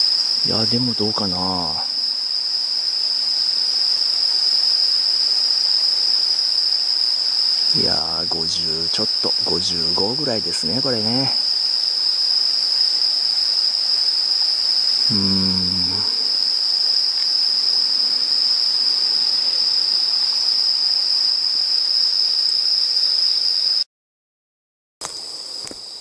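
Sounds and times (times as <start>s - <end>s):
insects singing in chorus: 0.0s - 23.8s, 25.0s - 26.0s
short hummed voice: 15.0s - 16.3s.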